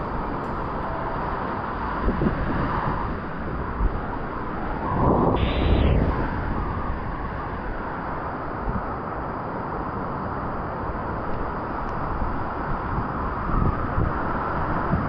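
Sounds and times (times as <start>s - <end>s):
wind buffeting microphone: 0.0s - 8.0s.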